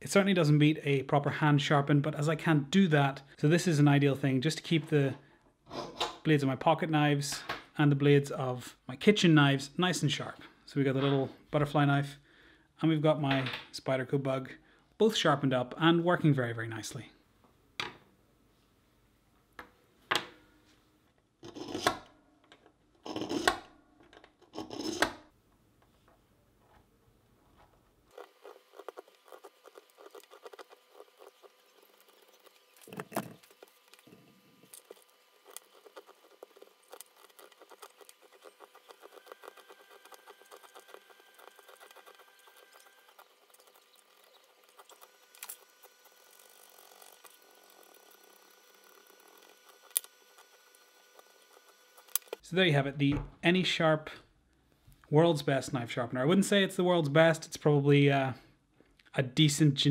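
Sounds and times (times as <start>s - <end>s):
pocket knife scraping wood: 28.1s - 52.4s.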